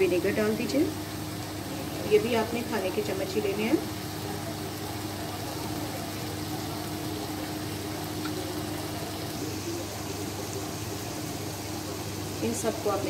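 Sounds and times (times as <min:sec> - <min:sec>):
food sizzling in a frying pan: 0:00.0 - 0:13.0.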